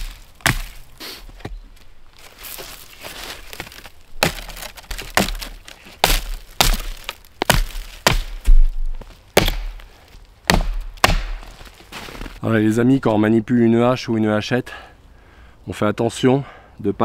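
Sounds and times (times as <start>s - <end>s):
hatchet chopping log: 0.0s - 1.6s, 3.6s - 11.6s.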